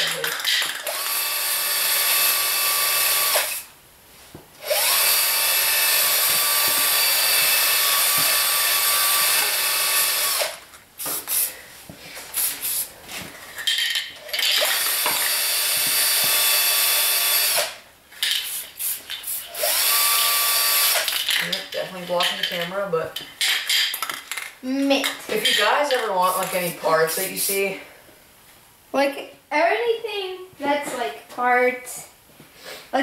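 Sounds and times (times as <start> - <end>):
spray paint can hissing: 11.0 - 11.5, 12.3 - 12.9, 18.2 - 19.6, 25.5 - 27.4.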